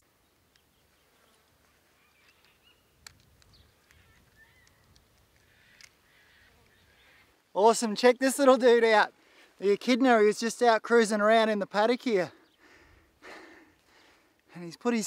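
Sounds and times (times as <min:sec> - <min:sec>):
distant bird chirps: 0:00.0 - 0:07.5, 0:12.2 - 0:14.2
soft ticks: 0:02.4 - 0:06.0.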